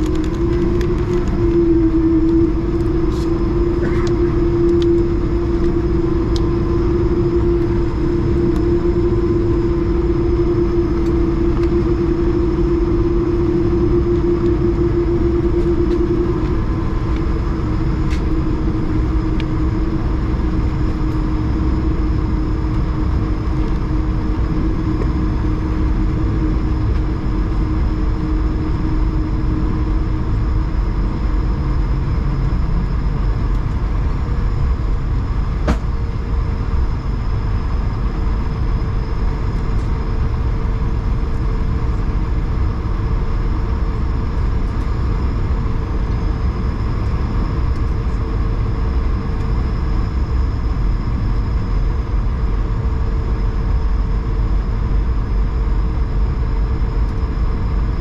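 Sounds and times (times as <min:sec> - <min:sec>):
higher hum: 0:00.0 - 0:37.0
aircraft cabin rumble: 0:00.0 - 0:58.0
engine hum: 0:00.0 - 0:58.0.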